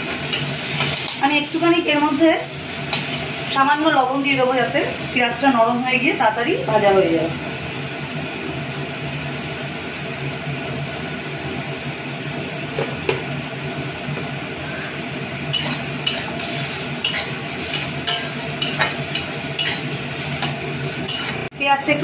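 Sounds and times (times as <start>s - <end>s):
onions sizzling in oil: 0.0s - 22.0s
metal spatula scraping pan: 15.5s - 21.5s.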